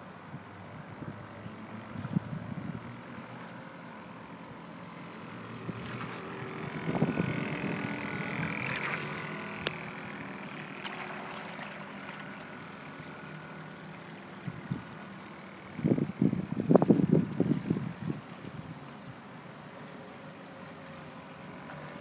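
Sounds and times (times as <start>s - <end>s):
model boat motor hum: 0.8s - 22.0s
water wash: 3.5s - 19.7s.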